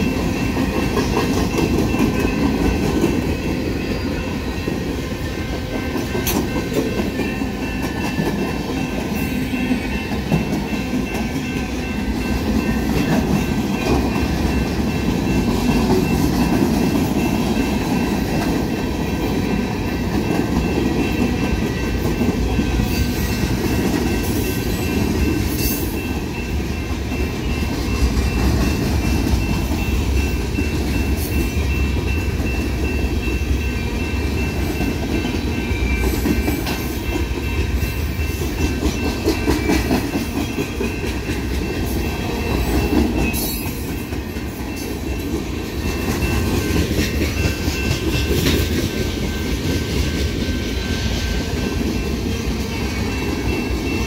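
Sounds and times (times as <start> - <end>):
clickety-clack over rail joints: 0.0 - 4.0, 4.6 - 54.0
train wheels rumbling on rail: 0.0 - 54.0.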